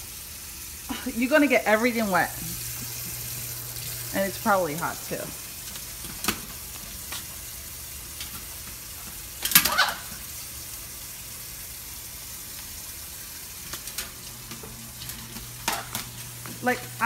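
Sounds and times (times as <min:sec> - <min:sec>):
parrot scrambling and flapping: 0:13.6 - 0:16.3.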